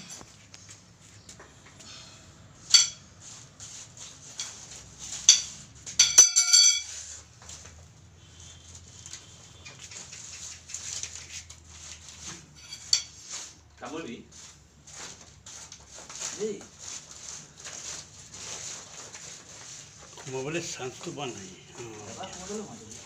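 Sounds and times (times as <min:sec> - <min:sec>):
metal rods tapping on concrete: 0:02.6 - 0:03.1, 0:05.2 - 0:06.9.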